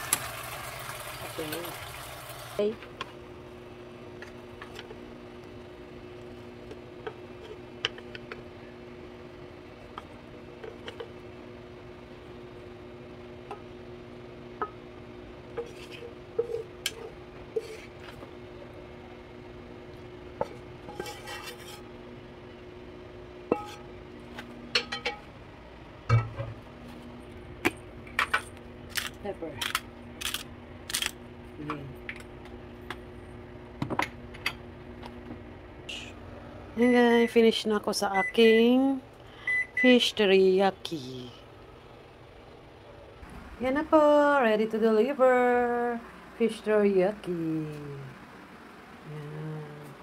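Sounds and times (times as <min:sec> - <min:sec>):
steady low hum: 0:02.6 - 0:50.0
pepper grinder clicks and rasps: 0:28.9 - 0:31.2.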